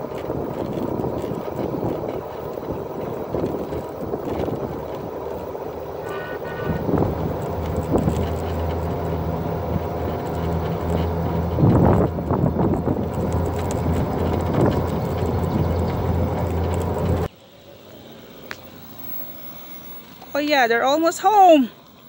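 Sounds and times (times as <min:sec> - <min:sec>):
golf cart rolling rumble: 0:00.0 - 0:17.3
steady low hum: 0:00.0 - 0:17.3.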